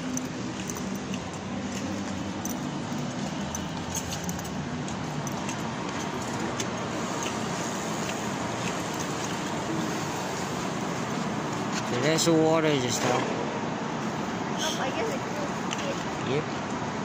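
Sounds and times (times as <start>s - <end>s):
light clicks and jingles: 0.0s - 9.6s.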